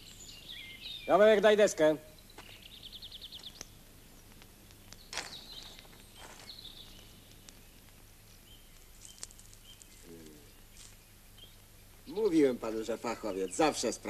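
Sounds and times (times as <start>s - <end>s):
high bird chirps: 0.0s - 1.5s, 2.1s - 12.4s
soft noisy sounds: 1.6s - 14.0s
faint clicks: 3.4s - 6.1s, 6.9s - 8.1s.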